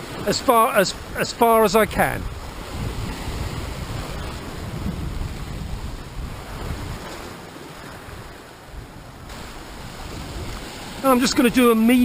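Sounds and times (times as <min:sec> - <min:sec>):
wind buffeting microphone: 0:01.0 - 0:12.0.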